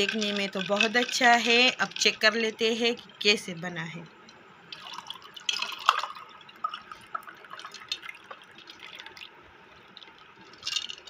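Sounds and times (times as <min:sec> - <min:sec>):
liquid pouring into glass: 0:04.7 - 0:11.0.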